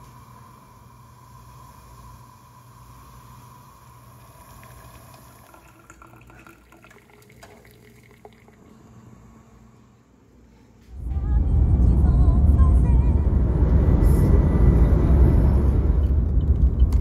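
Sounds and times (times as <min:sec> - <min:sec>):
water heating with faint hiss: 0:00.0 - 0:10.9
coffee dripping through filter: 0:03.8 - 0:09.0.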